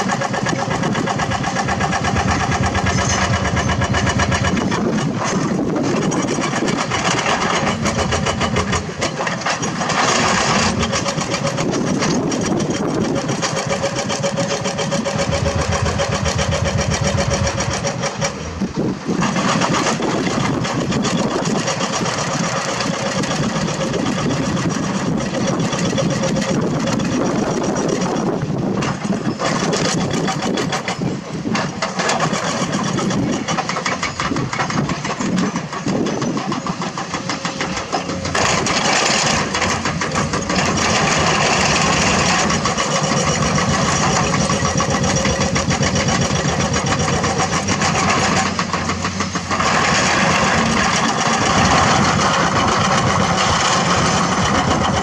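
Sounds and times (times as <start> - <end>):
diesel engines running: 0.0 - 55.0.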